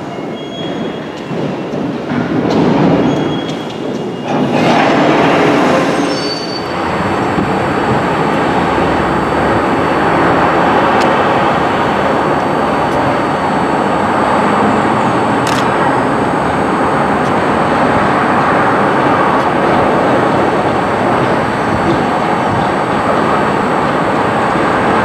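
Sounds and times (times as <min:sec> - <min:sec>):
train wheel squeal: 0:00.0 - 0:01.6, 0:03.0 - 0:06.8
train rumbling on track: 0:00.0 - 0:25.0.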